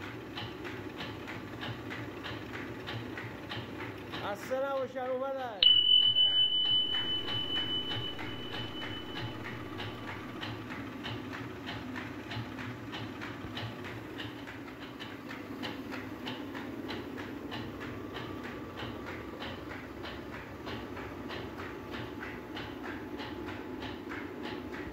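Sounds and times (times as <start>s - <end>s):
rhythmic mill clacking: 0.0s - 24.9s
high ringing tone: 5.6s - 10.5s.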